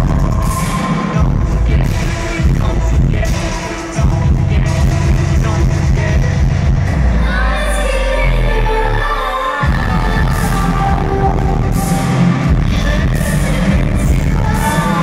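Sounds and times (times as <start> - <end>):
deep bass note: 0.0 - 0.6, 1.2 - 3.4, 4.0 - 14.6
pulsing electronic beat: 0.0 - 7.2, 9.6 - 15.0
synthesizers: 0.0 - 15.0
woman singing: 7.2 - 15.0.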